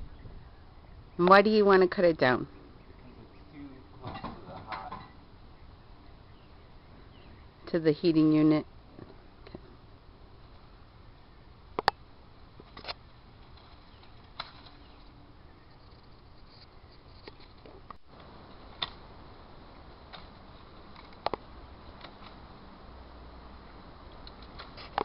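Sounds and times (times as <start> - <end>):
loppers snipping branches: 12.6 - 15.1.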